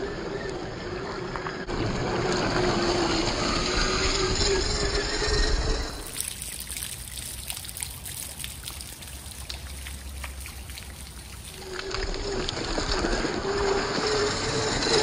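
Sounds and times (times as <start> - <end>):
toy car motor whine: 0.0 - 6.2, 11.4 - 15.0
water dripping and trickling: 6.0 - 14.3.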